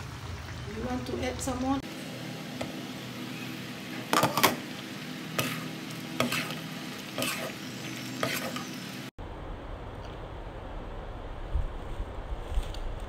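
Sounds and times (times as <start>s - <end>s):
stew sizzling: 0.0s - 9.2s
metal spatula scraping a wok: 5.3s - 8.8s.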